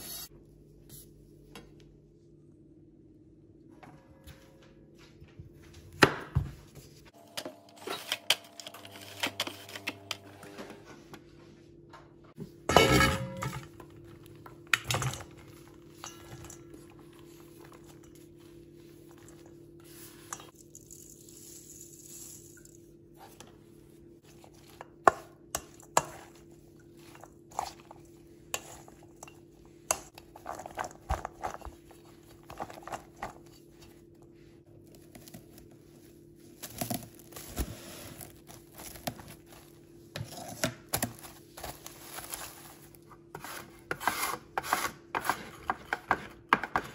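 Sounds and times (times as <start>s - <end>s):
wooden spoon scraping steel bowl: 43.3s - 46.9s.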